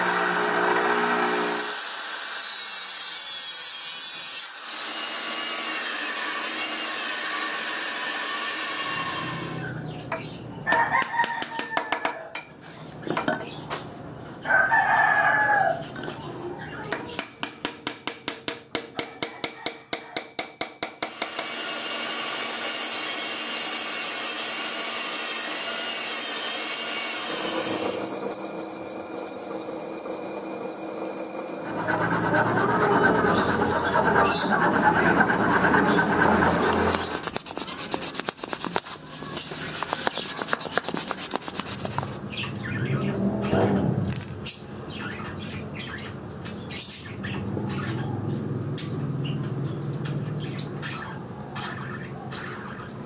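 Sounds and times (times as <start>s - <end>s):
hammer tapping: 16.9s - 21.5s
coarse scraping of wood: 31.8s - 42.2s.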